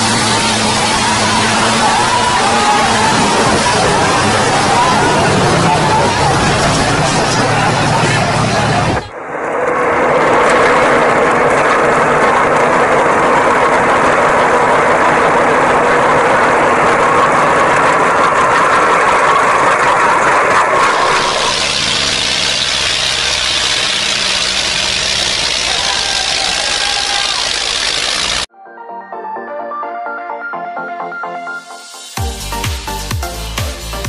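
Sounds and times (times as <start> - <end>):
tractor engine pulsing: 0.0 - 9.1, 10.4 - 28.5.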